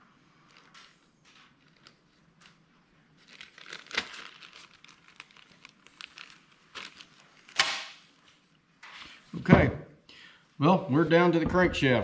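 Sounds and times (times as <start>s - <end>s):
plastic bag crinkling: 0.3s - 8.6s.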